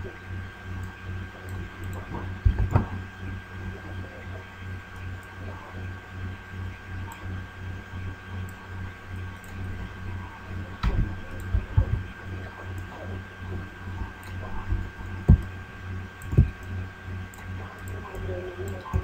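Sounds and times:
low hum: 0.0s - 19.0s
dull low thumps: 2.1s - 3.0s, 10.7s - 12.4s, 13.5s - 15.7s, 16.3s - 16.6s.

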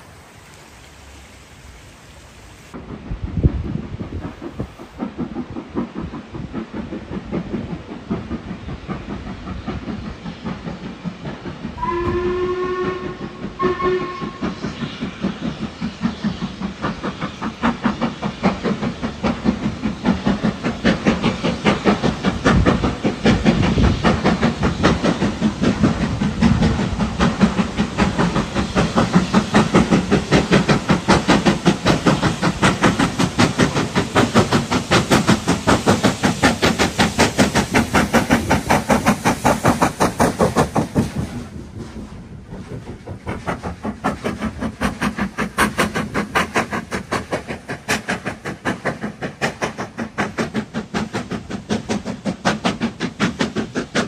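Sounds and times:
steam locomotive exhaust beats: 0.0s - 54.0s
steam locomotive whistle: 11.8s - 14.6s.

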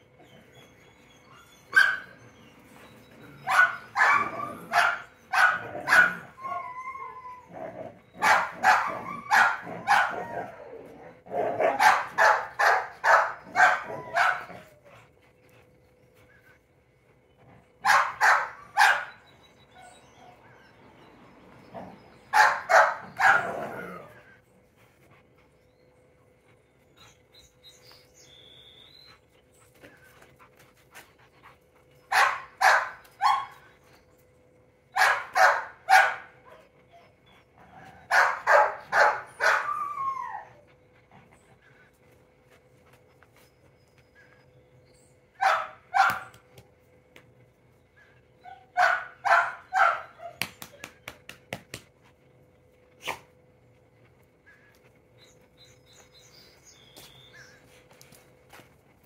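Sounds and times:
dog barking: 1.8s - 2.1s, 3.5s - 6.2s, 8.2s - 10.2s, 11.6s - 14.6s, 17.8s - 19.1s, 22.4s - 23.6s, 32.1s - 33.5s, 35.0s - 36.3s, 38.1s - 39.6s, 45.4s - 46.3s, 48.8s - 50.4s.

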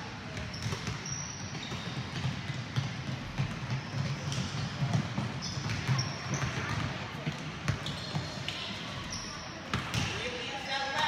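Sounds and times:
basketballs bouncing on wooden floor: 0.2s - 11.0s.

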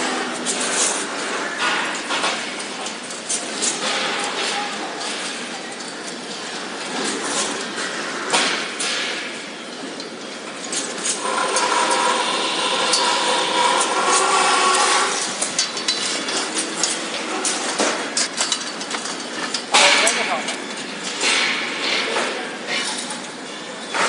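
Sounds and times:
metal clicks and knocks: 15.2s - 21.7s.

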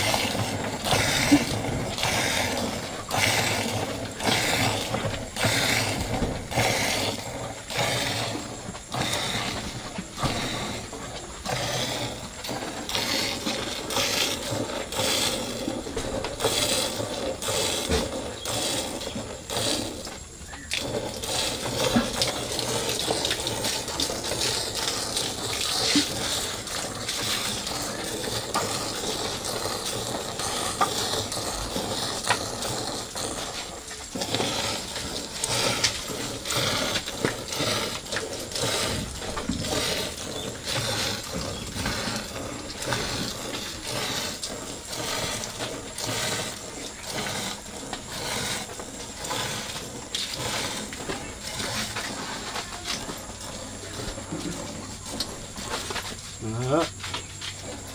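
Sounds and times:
milk squirting into metal pail: 0.0s - 57.9s.

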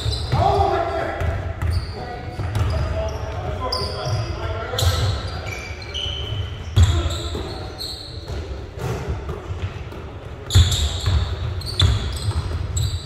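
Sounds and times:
voices echoing in hall: 0.0s - 13.0s
basketball bouncing on floor: 8.3s - 12.9s.

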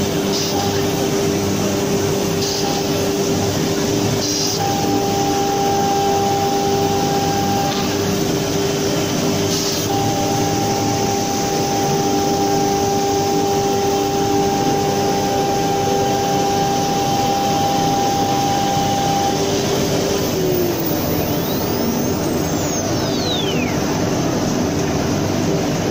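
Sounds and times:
router spindle whine: 0.0s - 25.9s
high steady tone: 9.8s - 24.7s.

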